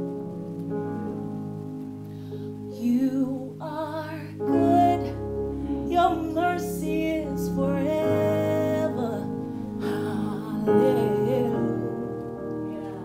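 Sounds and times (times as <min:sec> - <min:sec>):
keyboard accompaniment: 0:00.0 - 0:13.0
woman singing with vibrato: 0:02.8 - 0:13.0.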